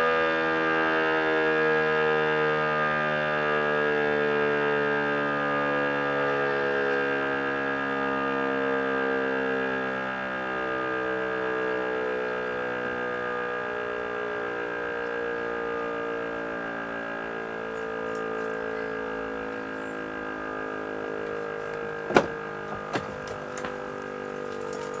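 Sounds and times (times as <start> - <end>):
electric siren alarm tone: 0.0 - 25.0
sharp clicks or knocks: 21.7 - 23.8.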